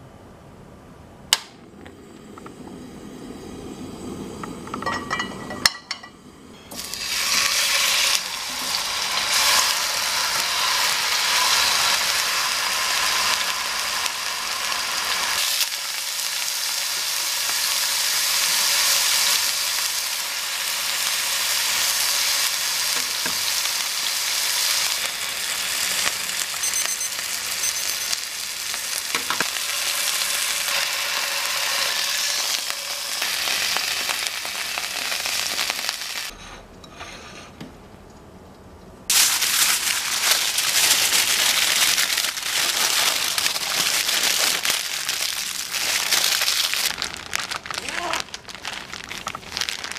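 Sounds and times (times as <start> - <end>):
meat sizzling in a frying pan: 6.7 - 36.3, 39.1 - 48.3.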